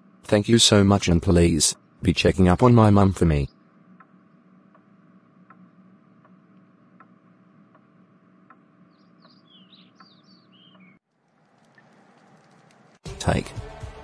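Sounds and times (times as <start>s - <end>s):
low steady hum: 0.0s - 13.4s
soft ticks: 4.0s - 8.6s.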